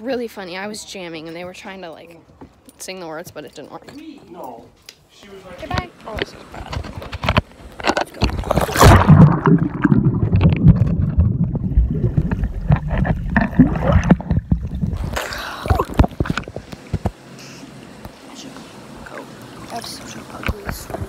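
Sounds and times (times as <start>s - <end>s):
muffled underwater sloshing: 8.1s - 17.2s
splash into swimming pool: 8.5s - 10.8s.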